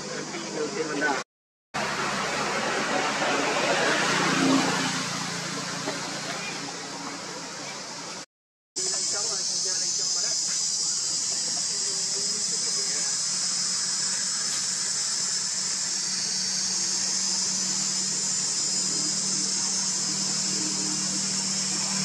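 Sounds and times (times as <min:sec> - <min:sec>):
insects droning: 0:08.8 - 0:22.0.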